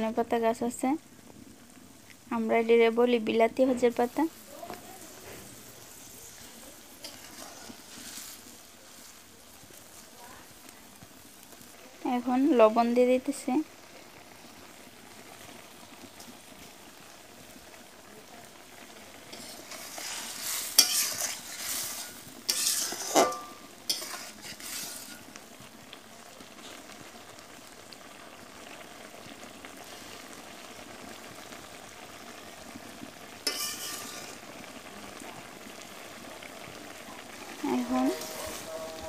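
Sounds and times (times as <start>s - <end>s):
fish sizzling in a metal pan: 0.0s - 39.0s
spatula scraping a pan: 5.1s - 9.2s, 19.3s - 25.3s, 33.4s - 34.4s, 37.4s - 39.0s.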